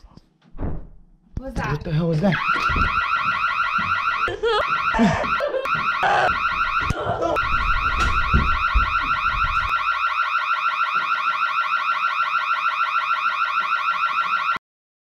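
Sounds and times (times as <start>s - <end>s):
low thumps: 0.5s - 1.7s, 2.6s - 4.1s, 5.8s - 10.0s
electronic alarm warbling: 2.3s - 14.6s.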